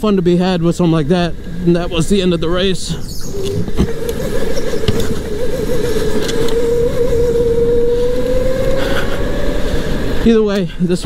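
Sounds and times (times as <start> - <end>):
electric motor whining: 3.1 - 10.2.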